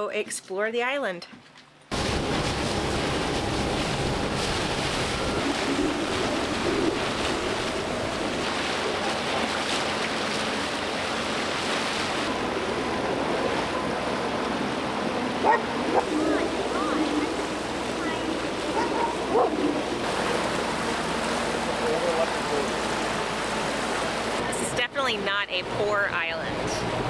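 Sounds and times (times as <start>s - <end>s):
outboard motor running: 1.9s - 27.0s
water rushing along hull: 1.9s - 27.0s
wind on microphone: 2.0s - 9.2s.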